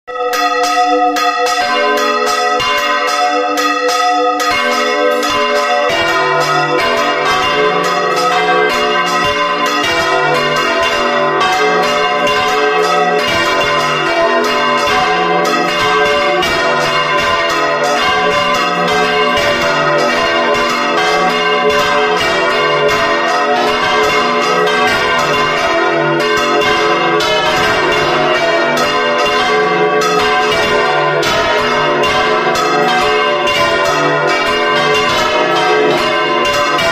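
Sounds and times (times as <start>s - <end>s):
church bells pealing: 0.1s - 36.9s
deep bell ringing: 0.1s - 36.9s.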